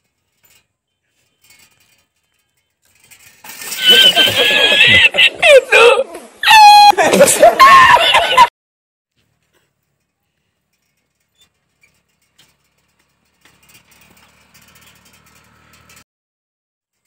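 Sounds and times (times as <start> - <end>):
bicycle clicking and rattling: 0.0 - 5.2, 9.1 - 16.0.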